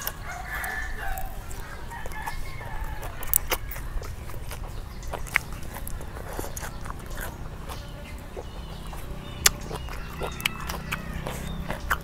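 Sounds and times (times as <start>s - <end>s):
chewing with wet mouth clicks: 0.0s - 12.0s.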